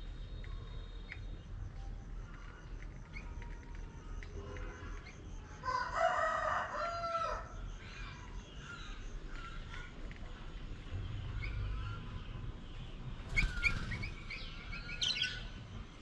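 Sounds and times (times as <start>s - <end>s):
small birds chirping: 0.0s - 5.7s, 6.8s - 16.0s
rooster crowing: 5.6s - 7.6s.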